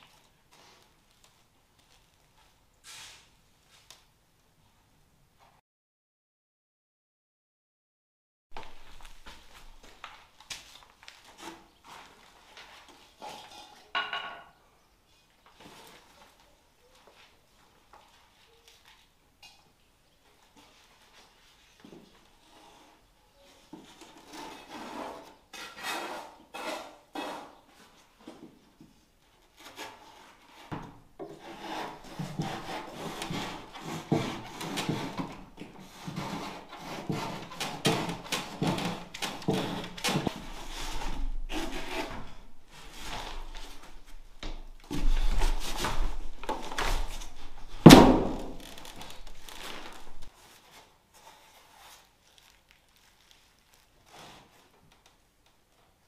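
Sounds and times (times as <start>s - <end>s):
hand saw cutting foam board: 24.0s - 27.6s, 29.6s - 43.4s.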